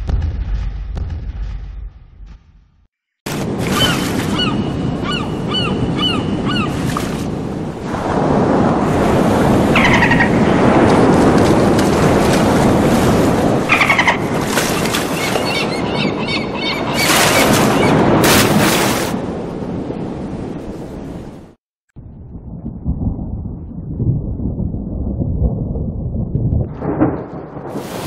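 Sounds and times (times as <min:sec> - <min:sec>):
rushing rumbling sound effects: 0:22.0 - 0:28.0.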